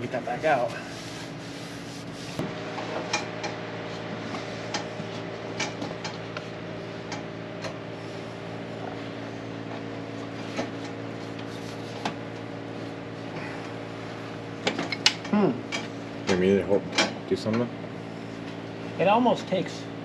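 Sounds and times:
mechanical hum: 0:00.0 - 0:20.0.

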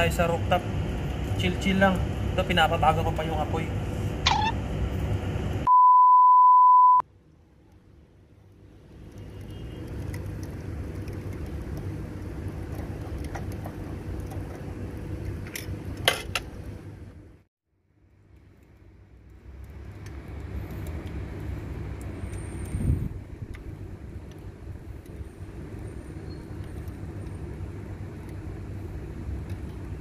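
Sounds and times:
electronic beep: 0:05.7 - 0:07.0.

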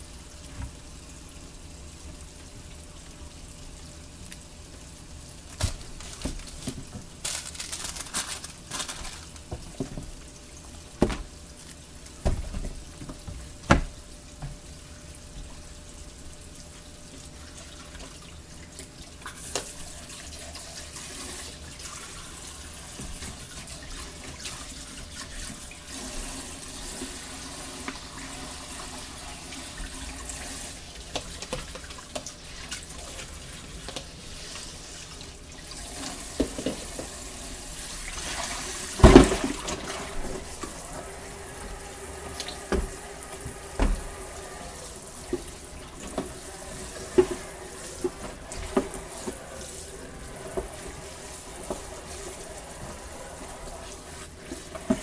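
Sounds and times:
tap running into sink: 0:09.4 - 0:10.2, 0:11.0 - 0:11.4, 0:12.2 - 0:14.6, 0:38.9 - 0:40.8, 0:42.2 - 0:52.2.

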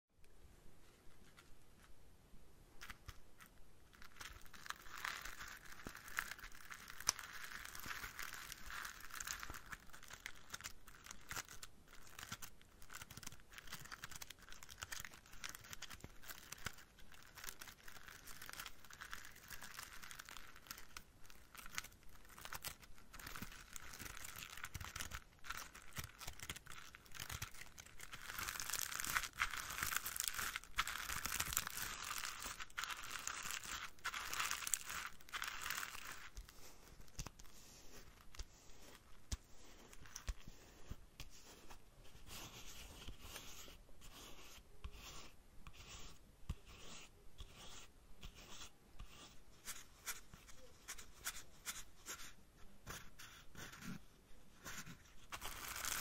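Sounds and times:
plastic leaves rustling and crinkling: 0:03.9 - 0:37.3.

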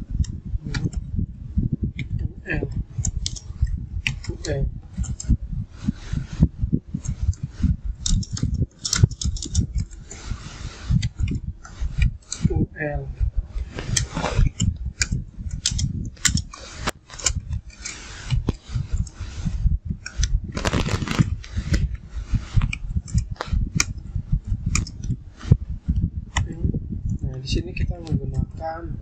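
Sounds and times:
keyboard typing: 0:08.0 - 0:10.0.

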